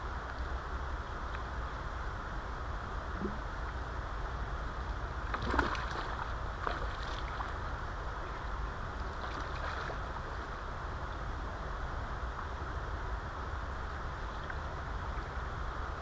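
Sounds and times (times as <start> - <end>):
river water splashing: 5.1 - 10.7
water rushing: 5.1 - 11.8.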